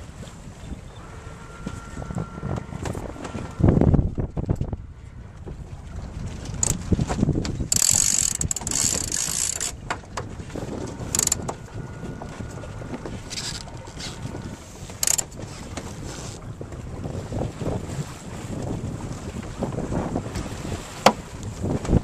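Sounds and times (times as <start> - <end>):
water along hull: 0.0 - 22.0
wind on microphone: 0.0 - 22.0
winch ratcheting: 6.6 - 6.8, 7.4 - 15.4.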